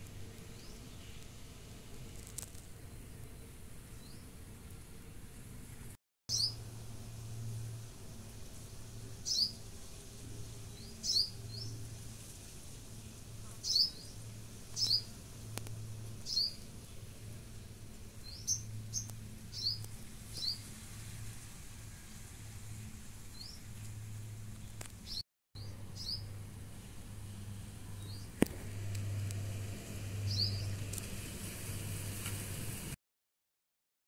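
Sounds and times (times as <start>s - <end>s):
small bird chirping: 6.3s - 6.6s, 9.2s - 9.6s, 10.7s - 11.8s, 13.5s - 15.1s, 16.2s - 16.6s, 18.2s - 20.7s, 24.6s - 26.3s, 28.0s - 28.3s, 30.2s - 30.8s.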